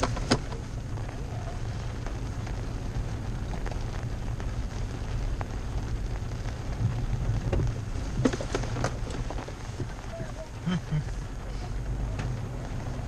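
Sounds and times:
sharp clicks and knocks: 0:00.0 - 0:00.6, 0:07.4 - 0:10.0
engine and tyre rumble: 0:00.0 - 0:13.0
rain on a truck: 0:00.0 - 0:13.0.

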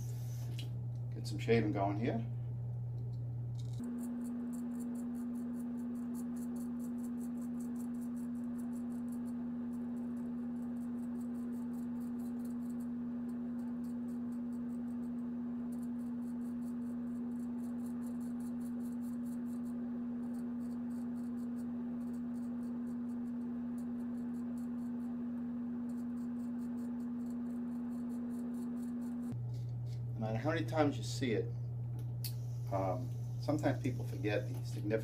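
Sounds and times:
steady low hum: 0:00.0 - 0:35.0
razor scraping through stubble: 0:03.5 - 0:25.1, 0:25.8 - 0:30.9.

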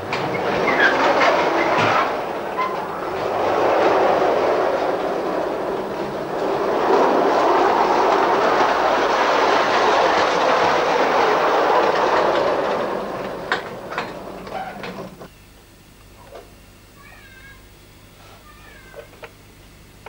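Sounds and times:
model tram rolling rumble: 0:00.0 - 0:15.3.

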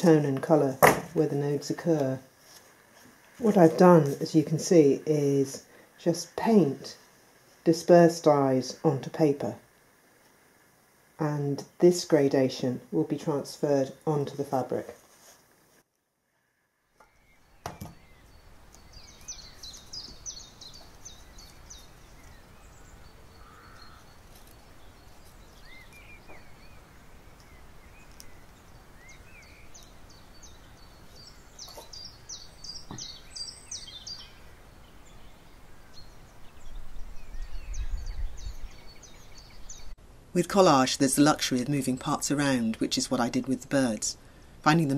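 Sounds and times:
outdoor background noise: 0:00.0 - 0:44.9
songbirds chirping and twittering: 0:16.4 - 0:44.9.

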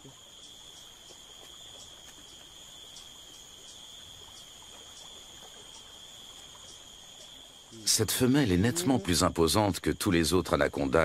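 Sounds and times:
faint forest background noise: 0:00.0 - 0:11.0
high-pitched insect chorus: 0:00.0 - 0:11.0.

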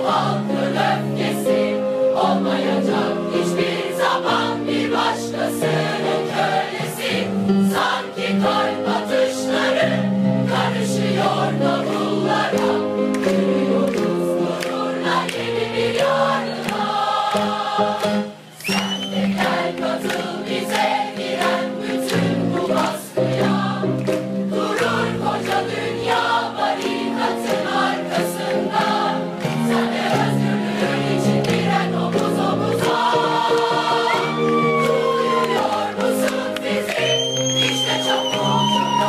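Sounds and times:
choir singing held notes: 0:00.0 - 0:39.0.

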